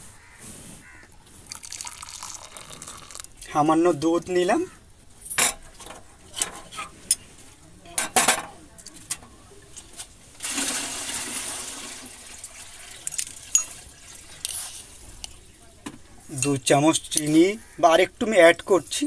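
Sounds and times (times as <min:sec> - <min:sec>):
glass and china clinking: 0:01.7 - 0:03.3, 0:13.0 - 0:14.6.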